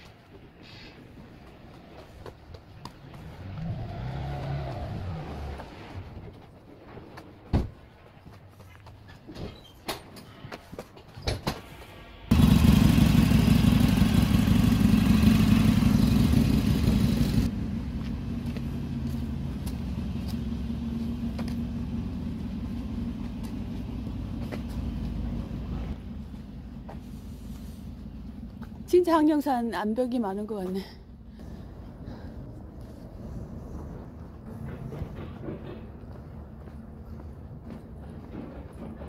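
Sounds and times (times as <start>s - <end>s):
loud steady rumble: 12.3s - 39.0s.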